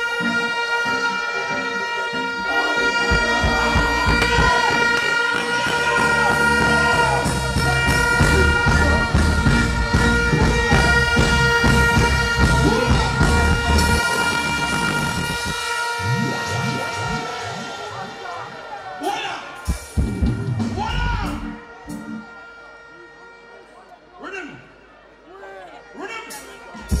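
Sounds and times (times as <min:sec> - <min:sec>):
high horn-like note: 0:00.0 - 0:24.2
live reggae band music: 0:00.0 - 0:27.0
heavy bass beat: 0:02.5 - 0:22.3, 0:26.8 - 0:27.0.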